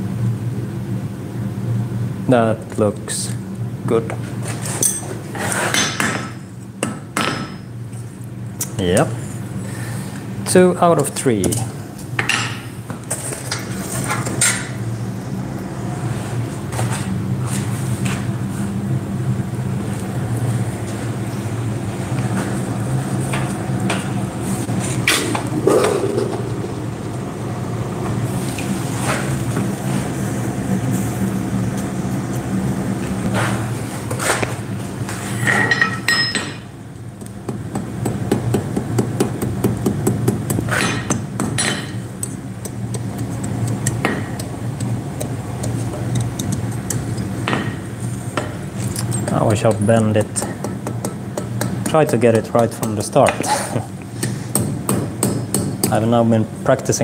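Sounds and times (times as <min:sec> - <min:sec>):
steady low hum: 0:00.0 - 0:57.0
hammer striking iron on anvil: 0:05.7 - 0:07.7, 0:35.5 - 0:36.7, 0:37.7 - 0:42.0, 0:47.4 - 0:47.8, 0:54.2 - 0:56.0.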